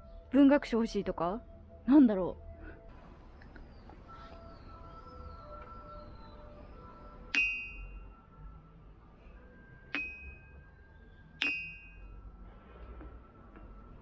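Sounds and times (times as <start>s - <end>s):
stone striking ringing stone: 7.3s - 8.0s, 9.9s - 10.6s, 11.4s - 12.1s.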